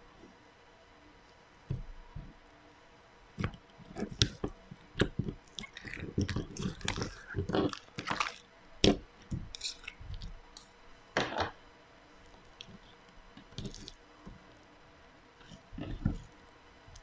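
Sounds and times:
slime squelching: 0:03.4 - 0:11.4, 0:12.5 - 0:14.0, 0:15.4 - 0:16.3.

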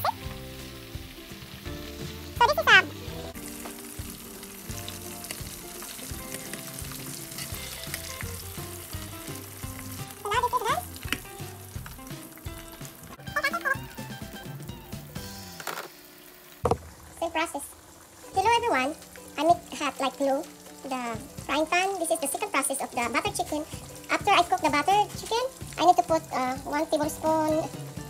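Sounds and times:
faint background music: 0:00.0 - 0:16.4, 0:17.2 - 0:28.0
chicken deep-frying in oil: 0:00.0 - 0:28.0
spatula and tongs stirring: 0:03.6 - 0:11.6.

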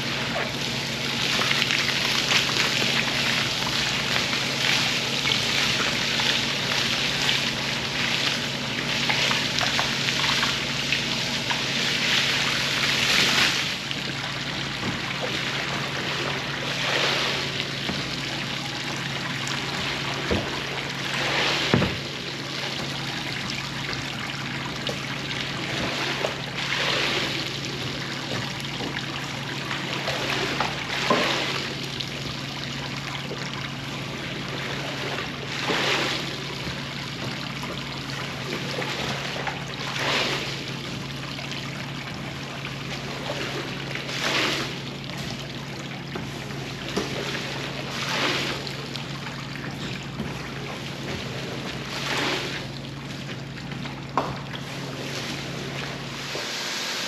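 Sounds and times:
water swishing surge: 0:00.0 - 0:32.7, 0:43.0 - 0:53.7
steady machine hum: 0:00.0 - 0:57.0
water running and trickling: 0:00.0 - 0:57.0.

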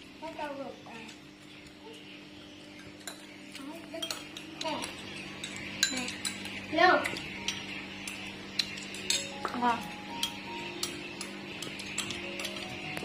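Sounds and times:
metal spoons clinking on pans: 0:02.7 - 0:13.0.

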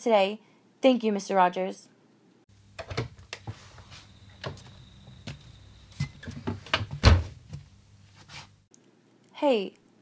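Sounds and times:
steady low hum: 0:02.5 - 0:08.7.

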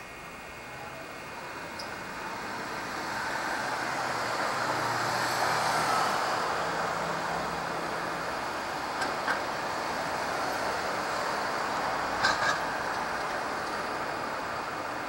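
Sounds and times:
vehicle passing by: 0:02.2 - 0:08.6.

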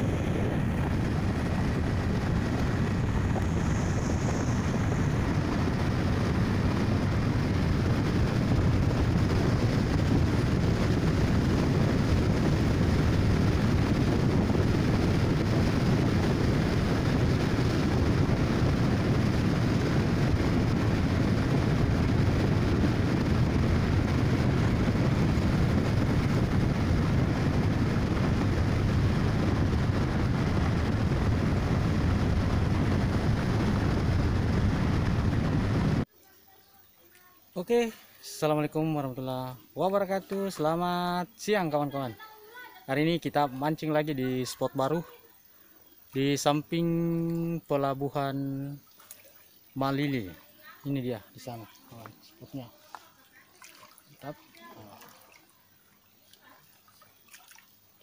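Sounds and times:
vehicle running on paved road: 0:00.0 - 0:36.1
wind over microphone: 0:00.0 - 0:36.1.

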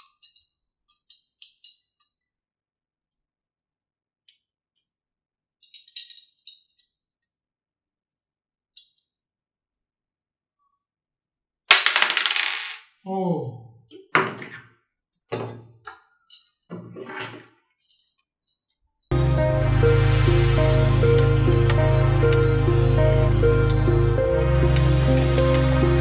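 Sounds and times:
chair parts clattering and knocking: 0:00.0 - 0:02.1, 0:05.6 - 0:07.0, 0:15.3 - 0:18.8
small metal screws clinking: 0:00.0 - 0:02.1, 0:05.6 - 0:07.0, 0:16.2 - 0:16.7, 0:17.8 - 0:19.0.

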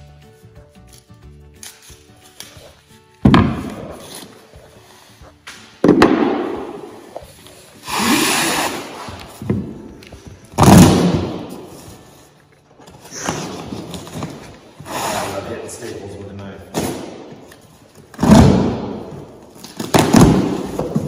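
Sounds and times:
rasping scrape: 0:14.8 - 0:15.8.

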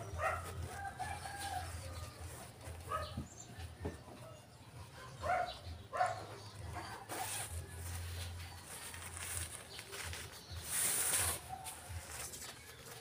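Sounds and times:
fabric rustling: 0:06.8 - 0:13.0
zipper being pulled open: 0:06.9 - 0:07.8.

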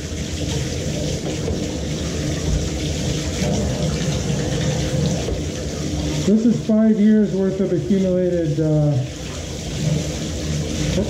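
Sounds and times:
tap water splashing on plastic: 0:00.0 - 0:06.6.

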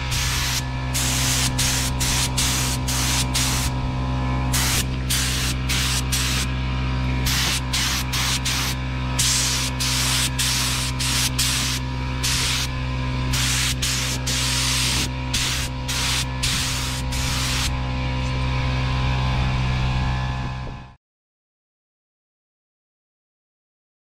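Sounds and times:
spray gun hissing bursts: 0:00.0 - 0:03.8, 0:04.5 - 0:06.5, 0:07.2 - 0:12.7, 0:13.3 - 0:17.7
steady low hum: 0:00.0 - 0:21.0.

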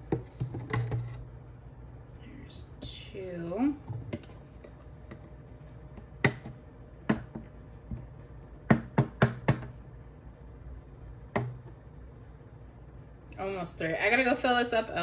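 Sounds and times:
plastic cup knocking on containers: 0:00.0 - 0:01.2, 0:03.8 - 0:09.8, 0:11.3 - 0:11.8.

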